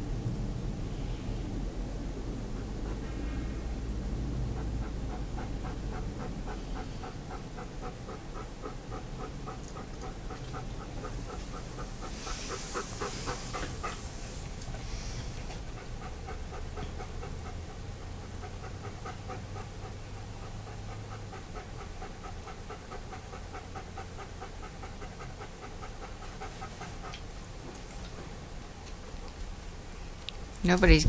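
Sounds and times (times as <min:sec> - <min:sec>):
dog panting: 0:02.1 - 0:30.1.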